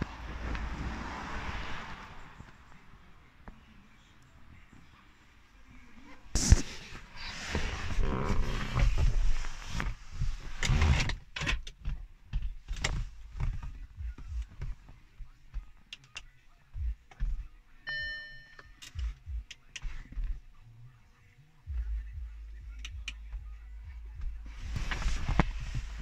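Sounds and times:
clicks and knocks of car controls: 0:10.5 - 0:17.5.

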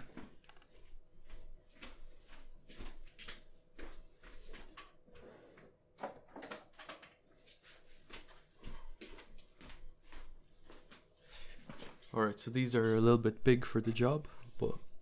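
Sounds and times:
tools knocking and rustling: 0:06.0 - 0:07.2.

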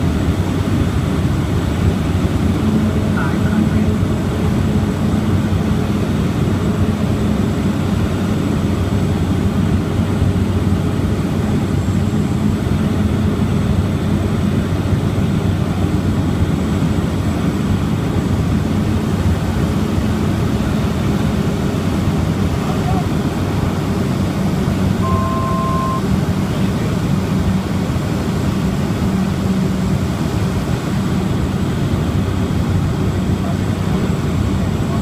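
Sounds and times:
turboprop engine drone in cabin: 0:00.0 - 0:35.0
faint high whine: 0:24.9 - 0:26.2.

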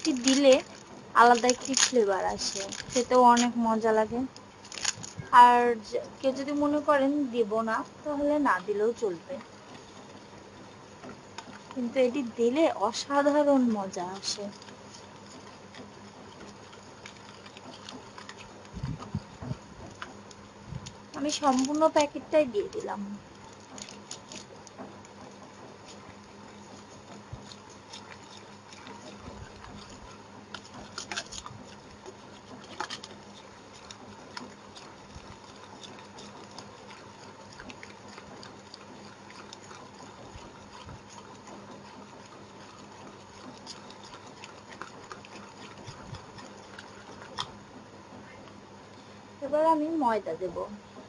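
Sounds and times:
whisk beating batter: 0:00.0 - 0:48.9.

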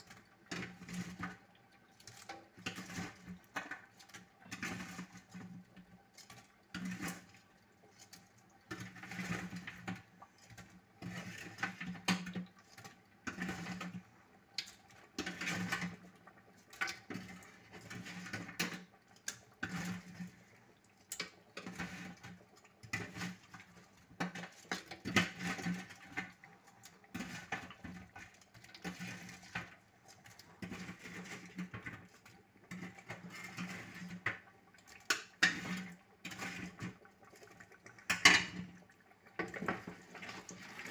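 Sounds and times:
spoon stirring thick stew: 0:00.0 - 0:40.9
spoon scraping metal pot: 0:16.9 - 0:20.5, 0:21.1 - 0:29.8, 0:30.4 - 0:32.1, 0:32.7 - 0:34.4, 0:35.0 - 0:37.0.

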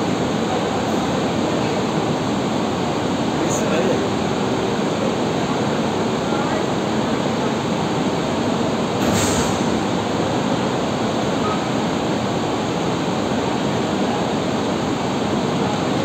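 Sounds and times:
brief hiss: 0:09.0 - 0:09.8.

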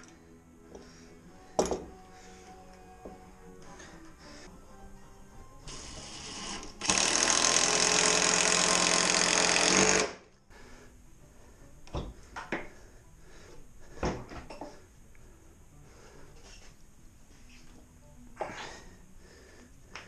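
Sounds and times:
cordless drill running: 0:05.8 - 0:10.2.

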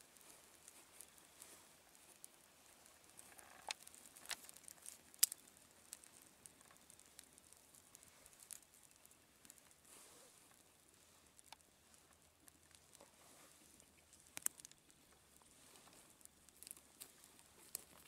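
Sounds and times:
fire snapping: 0:00.0 - 0:18.0
twig fire crackling: 0:00.0 - 0:18.0.

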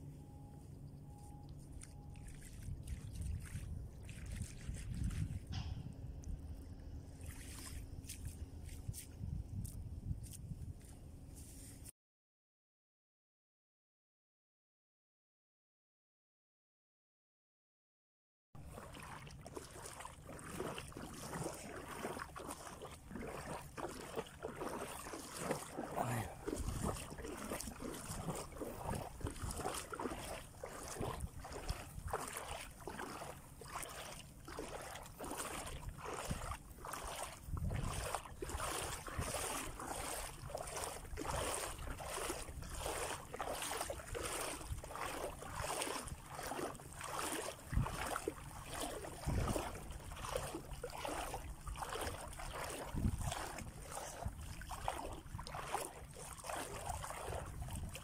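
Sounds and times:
seawater sloshing and splashing: 0:00.3 - 0:09.7, 0:18.6 - 0:58.0
wind buffeting microphone: 0:02.6 - 0:07.0, 0:08.7 - 0:10.8, 0:26.4 - 0:32.6, 0:35.6 - 0:43.8, 0:44.5 - 0:45.4, 0:47.6 - 0:48.4, 0:49.0 - 0:50.6, 0:52.8 - 0:55.5, 0:57.2 - 0:58.0.

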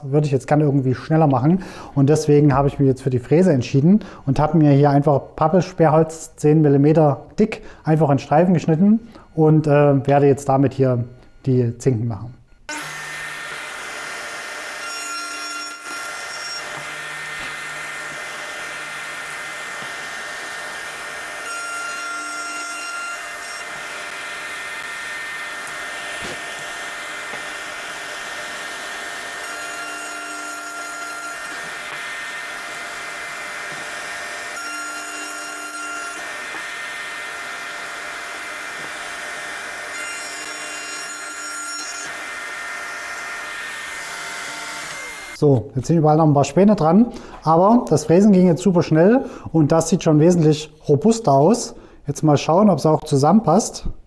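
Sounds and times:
router cutting wood: 0:12.7 - 0:45.4
wood router motor whine: 0:12.7 - 0:45.4.

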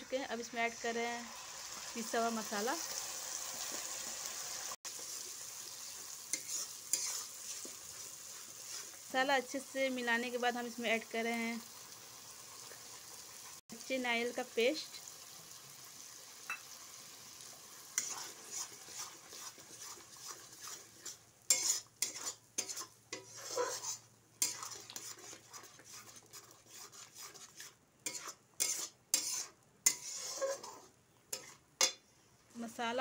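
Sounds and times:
light sizzle: 0:00.0 - 0:33.0
metal spatula scraping a wok: 0:05.9 - 0:09.2, 0:17.9 - 0:32.0.

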